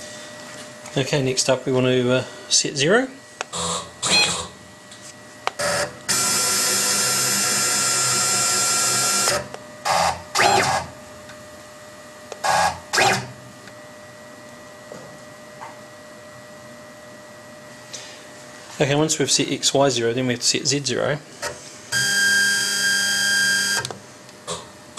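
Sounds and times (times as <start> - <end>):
router drive motors whining: 5.6 - 10.9, 12.4 - 13.3, 21.9 - 24.0.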